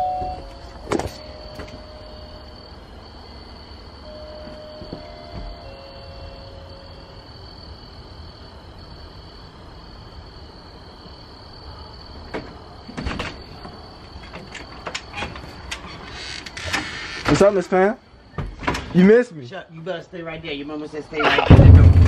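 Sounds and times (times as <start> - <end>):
crickets chirping: 0.0 - 22.0
door knocks and clatters: 12.3 - 17.5.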